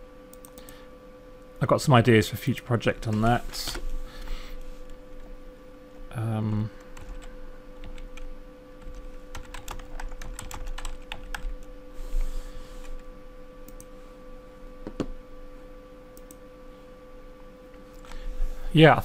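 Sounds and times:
faint steady hum: 0.0 - 19.0
typing on keyboard: 8.8 - 11.5.

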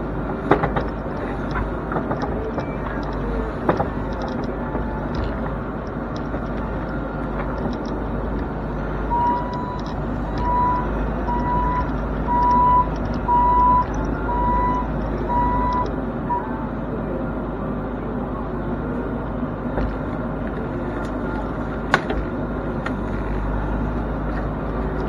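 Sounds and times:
excavator engine running: 0.0 - 25.0
travel alarm beeping: 9.1 - 16.6.

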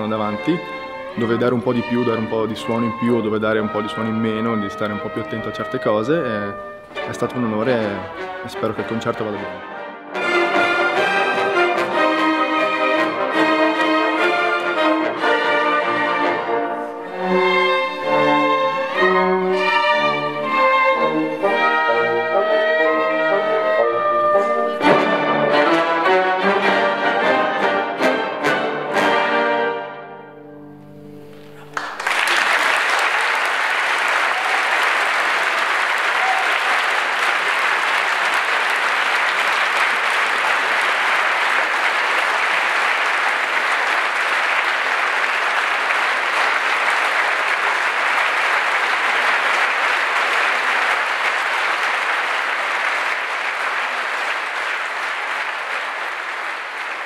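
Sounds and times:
orchestra playing chords: 0.0 - 32.1, 36.8 - 57.0
audience applause: 10.2 - 25.7, 31.3 - 57.0.

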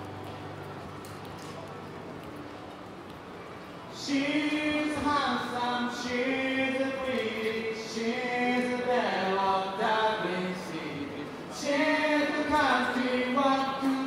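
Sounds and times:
man singing through pa: 4.0 - 14.0.

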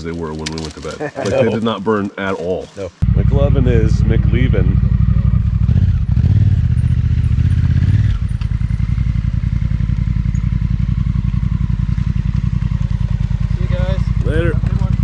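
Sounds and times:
motorcycle engine idling: 3.0 - 15.0.

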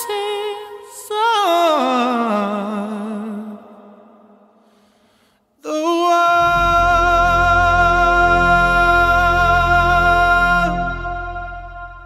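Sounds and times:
held final music chord: 6.4 - 12.0.

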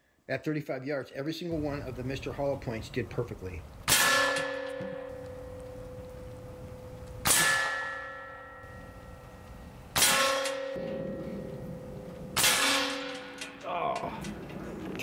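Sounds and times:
slug striking steel plate: 3.9 - 5.2, 7.2 - 8.8, 10.0 - 13.6
steel plate ringing: 3.9 - 13.7.

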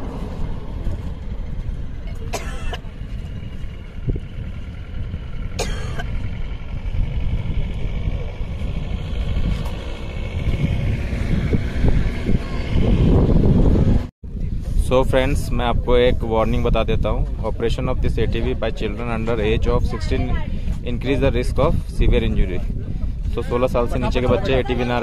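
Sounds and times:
wind buffeting microphone: 0.0 - 25.0
person coughing: 2.3 - 2.8, 5.6 - 6.1.

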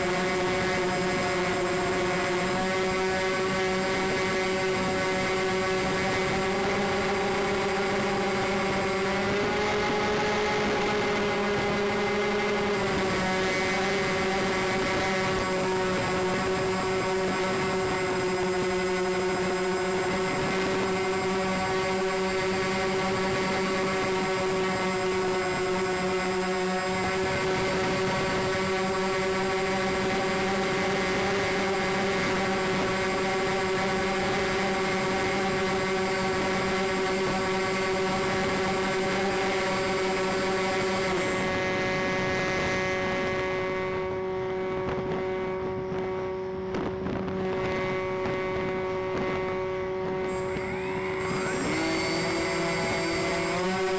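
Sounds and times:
model plane propellers droning: 0.0 - 53.9.

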